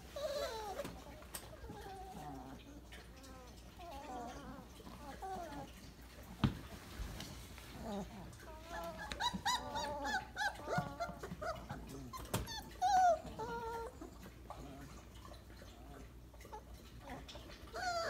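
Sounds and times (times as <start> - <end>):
puppies whimpering and squeaking: 0.0 - 6.3, 7.4 - 18.0.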